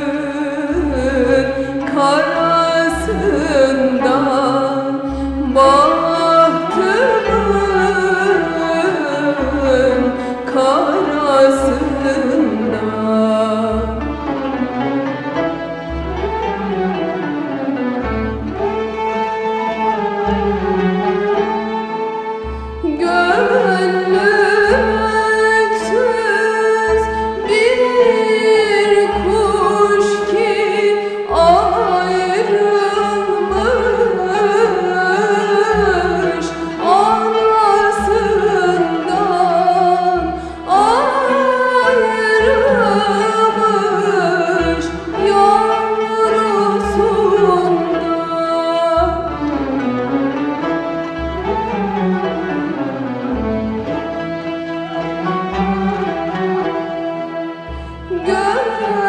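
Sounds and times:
woman singing ornamented melody: 0.0s - 14.0s, 22.8s - 49.3s, 58.1s - 59.0s
instrumental accompaniment: 0.0s - 59.0s.

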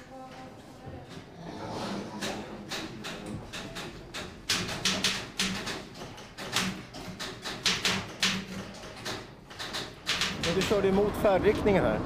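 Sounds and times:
typewriter key strikes: 2.7s - 10.8s.

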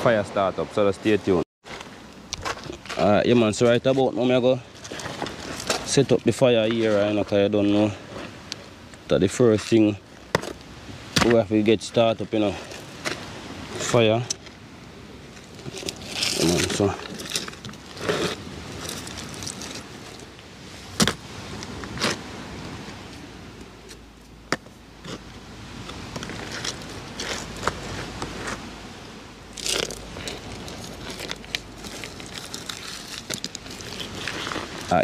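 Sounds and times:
stones scraping on gravel: 1.7s - 8.4s, 15.3s - 20.3s, 20.9s - 22.2s, 23.9s - 28.7s, 29.5s - 35.0s.

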